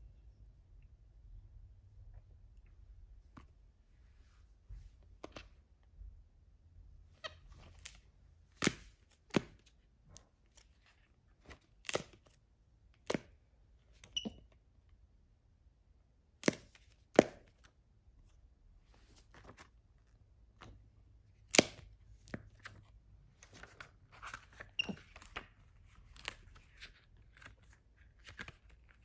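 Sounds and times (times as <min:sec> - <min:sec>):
taps and slaps of book pages: 0:08.6 - 0:10.2, 0:13.0 - 0:13.4, 0:16.4 - 0:17.6, 0:21.5 - 0:22.8.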